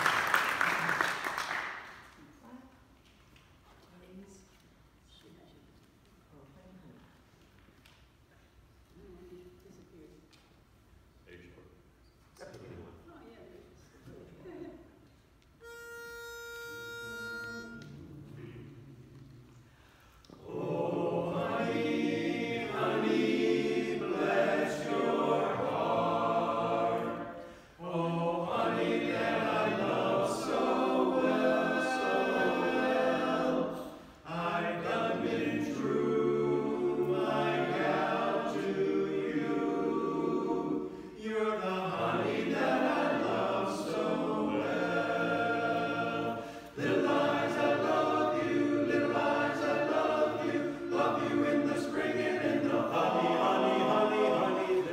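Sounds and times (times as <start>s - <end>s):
a cappella chorus singing: 17.6s - 54.9s.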